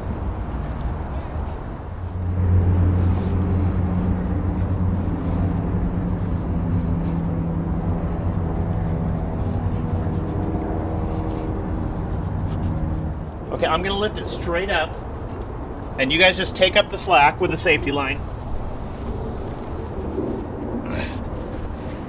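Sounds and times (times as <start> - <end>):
low engine drone: 0.0 - 22.0.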